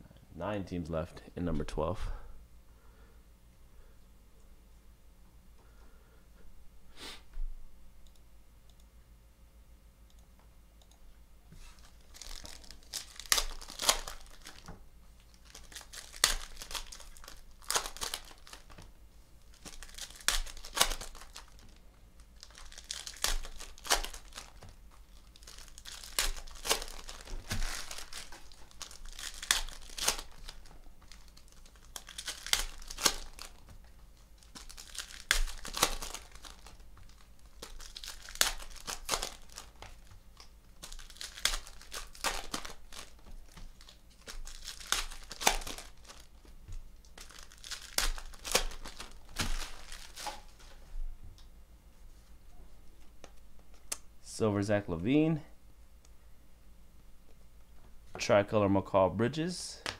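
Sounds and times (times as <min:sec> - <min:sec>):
foil wrappers tearing and crinkling: 0:11.8 - 0:18.8, 0:19.4 - 0:50.7.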